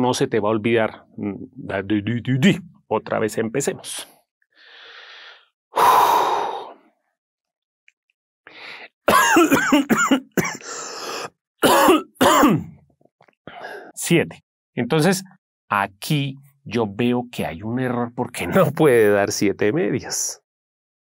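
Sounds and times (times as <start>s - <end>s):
man breathing in: 4.5s - 7.0s, 8.5s - 9.0s, 10.6s - 11.3s, 13.5s - 14.0s
man coughing: 9.1s - 10.8s, 11.6s - 12.8s.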